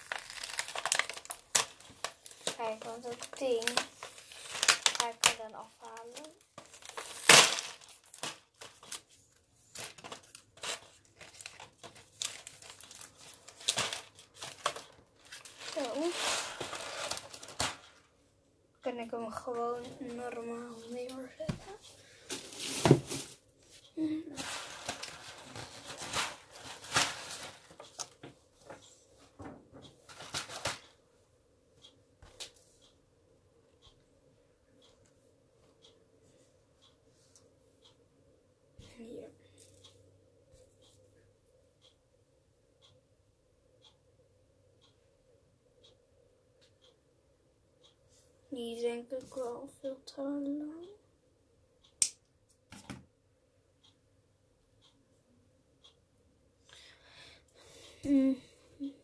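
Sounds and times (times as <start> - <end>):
plastic box of beads rummaged: 9.8 - 17.8.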